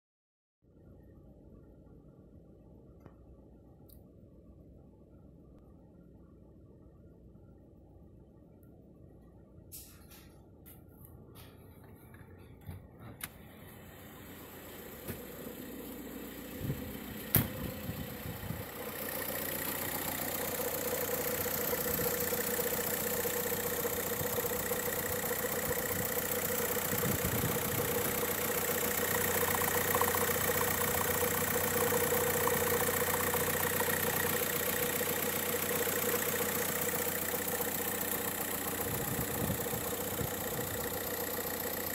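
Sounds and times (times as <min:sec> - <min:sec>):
diesel engine idling: 0:11.2 - 0:41.9.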